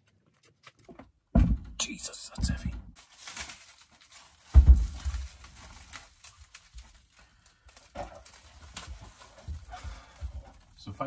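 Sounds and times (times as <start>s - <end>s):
plastic wrapping rustling: 3.0s - 11.0s.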